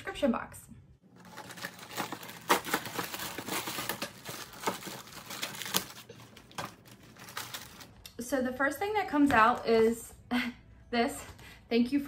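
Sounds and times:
packaging crinkling and rustling: 0:01.1 - 0:08.0.

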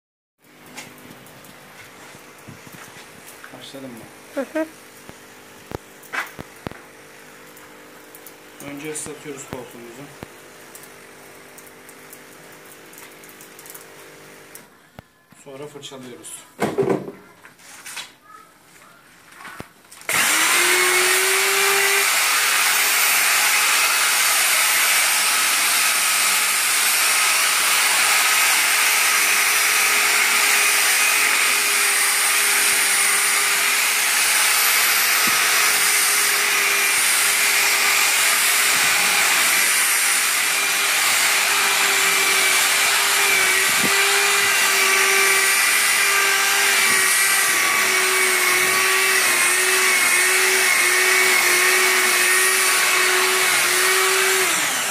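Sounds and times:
electric polisher motor whine: 0:20.1 - 0:54.9.

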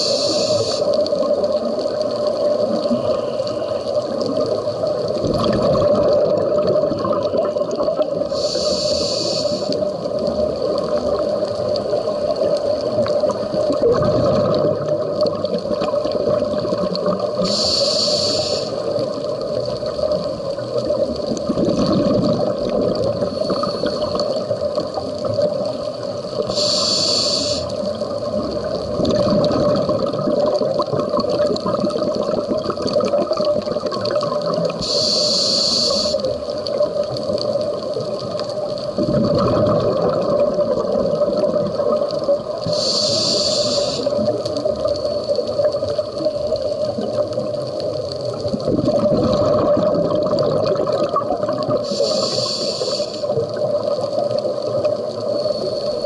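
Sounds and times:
regulator breathing hiss: 0:00.0 - 0:01.1, 0:08.2 - 0:10.0, 0:17.4 - 0:19.2, 0:23.2 - 0:24.6, 0:26.4 - 0:28.1, 0:34.8 - 0:36.4, 0:42.2 - 0:44.4, 0:51.7 - 0:53.6, 0:55.2 - 0:56.0
rumble of exhaled bubbles: 0:00.0 - 0:35.1, 0:36.0 - 0:56.0
underwater noise: 0:00.0 - 0:56.0.

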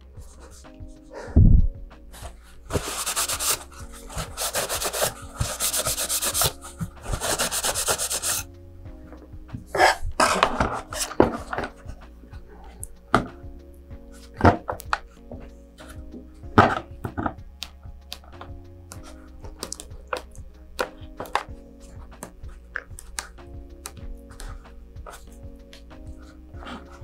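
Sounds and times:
knocks and handling noises: 0:00.0 - 0:13.5, 0:14.2 - 0:27.0
soft background music: 0:00.0 - 0:27.0
cloth rubbing gloved hands: 0:02.0 - 0:08.5.

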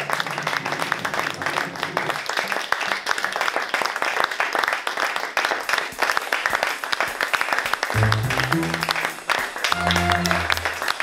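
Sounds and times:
audience applauding: 0:00.0 - 0:11.0
music with low bass notes: 0:08.0 - 0:09.1.

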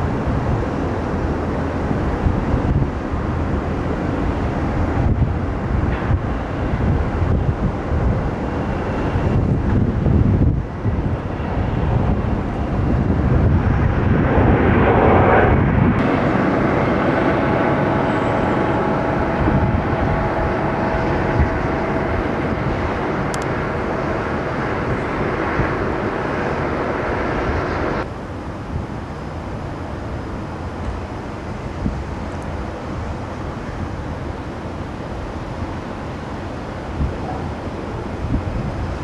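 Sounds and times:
airplane engine on approach: 0:00.0 - 0:39.0
jet engines on runway: 0:00.0 - 0:39.0
helicopter engine and rotor: 0:08.4 - 0:28.1.

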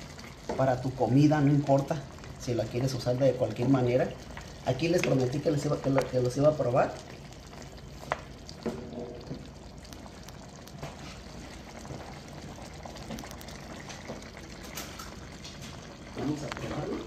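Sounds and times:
stew bubbling in a pot: 0:00.0 - 0:17.0.

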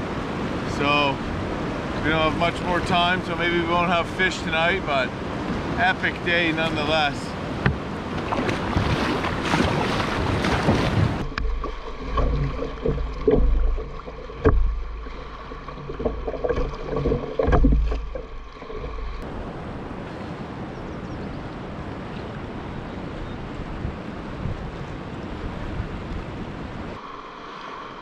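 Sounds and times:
paddle strokes splashing water: 0:01.3 - 0:19.4
wind buffeting microphone: 0:04.5 - 0:27.0
sharp knocks: 0:07.6 - 0:07.8, 0:10.6 - 0:19.2.

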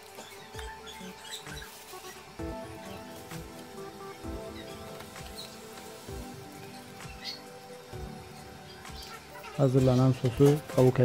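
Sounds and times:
background music with low beat: 0:00.0 - 0:11.0.

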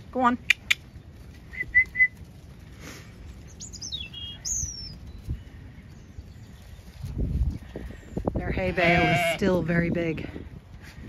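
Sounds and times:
low wind rumble: 0:00.0 - 0:11.0
small bird chirping: 0:03.5 - 0:06.8.

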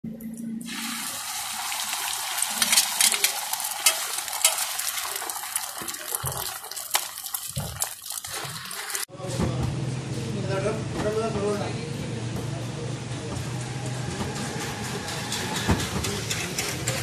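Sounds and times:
egg sizzling in hot oil: 0:00.7 - 0:09.1
tongs and spatula scraping griddle: 0:02.6 - 0:04.7.

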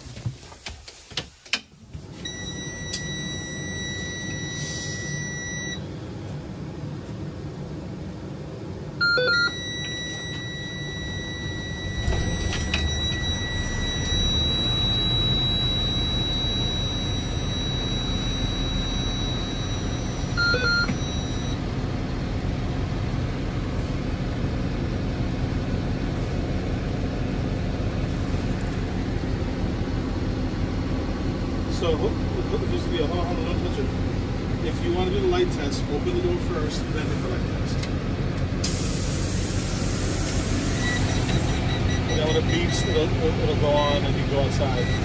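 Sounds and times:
bus engine cranking and idling: 0:00.0 - 0:45.0
dashboard beep: 0:02.3 - 0:05.8, 0:09.0 - 0:21.6, 0:40.8 - 0:45.0
high-pitched warning tone: 0:09.0 - 0:21.6, 0:40.6 - 0:45.0.

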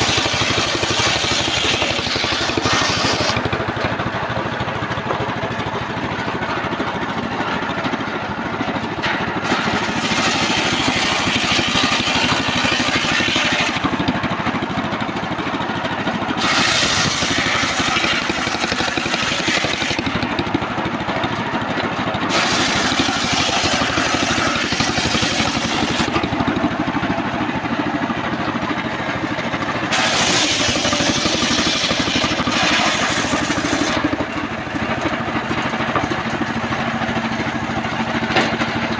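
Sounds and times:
saw blade rasping through wood: 0:00.0 - 0:03.8, 0:09.4 - 0:14.1, 0:16.4 - 0:20.6, 0:22.3 - 0:26.4, 0:29.9 - 0:34.1
engine running: 0:00.0 - 0:38.9.

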